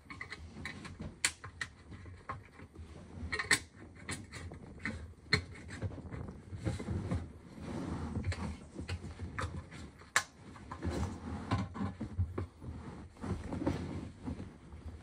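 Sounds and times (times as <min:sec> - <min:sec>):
plastic lids rustling and clicking: 0:00.0 - 0:13.7
sleeve rustling: 0:12.6 - 0:15.0.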